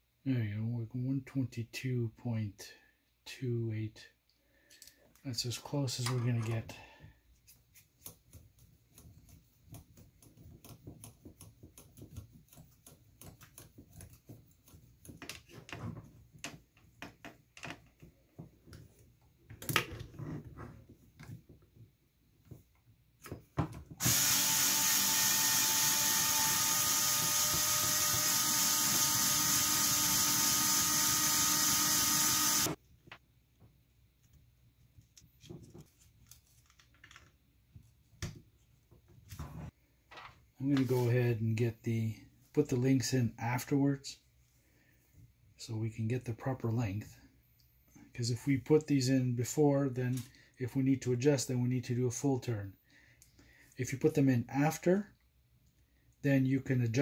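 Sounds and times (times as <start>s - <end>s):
cordless drill running: 24.0s - 32.8s.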